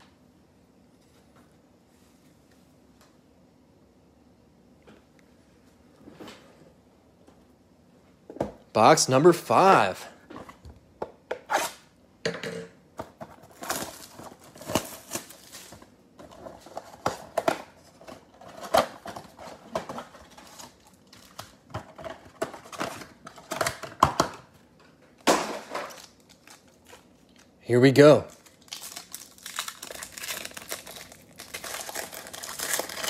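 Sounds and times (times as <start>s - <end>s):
cardboard and foil packs handled: 13.0s - 24.3s, 25.6s - 27.6s, 28.3s - 33.0s
cellophane crinkling and tearing: 13.3s - 23.8s, 25.8s - 27.6s, 28.3s - 33.0s.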